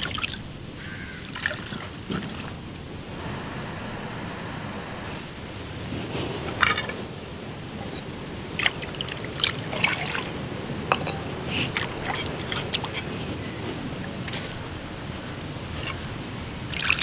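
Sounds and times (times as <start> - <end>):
water splashing and dripping: 0.0 - 0.6, 1.2 - 2.8, 7.8 - 13.1, 15.6 - 17.0.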